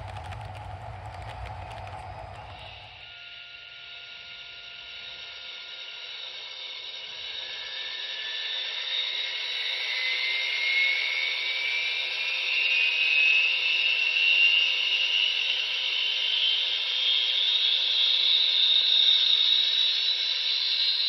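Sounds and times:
turbine whine rising in pitch: 0.0 - 3.1.

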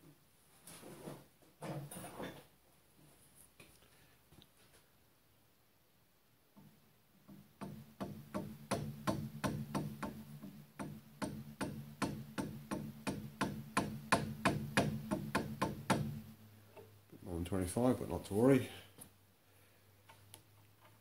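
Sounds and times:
mallet tapping metal: 10.8 - 16.1.

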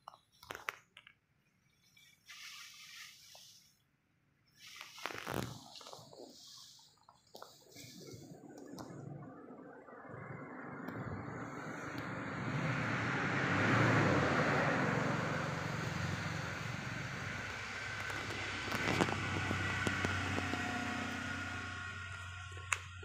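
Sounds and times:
steady low hum: 5.6 - 23.0
road vehicle passing: 7.7 - 23.0.

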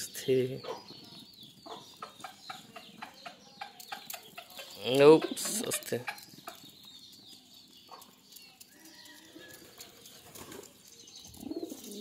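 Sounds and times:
pigeons cooing: 9.4 - 12.0.

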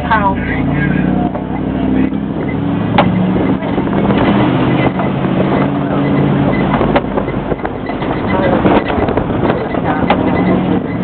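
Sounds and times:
truck engine running: 0.0 - 11.0
vehicle knocks and rattles: 2.3 - 11.0.

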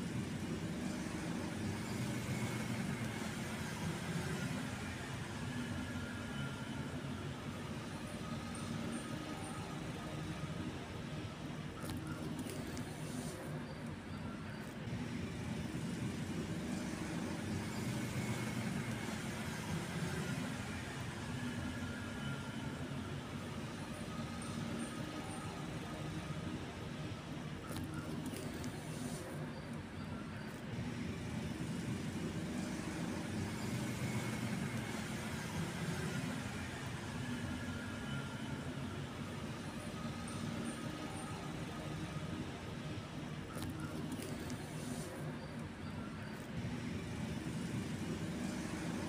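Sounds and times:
road traffic rumble: 0.0 - 49.0.

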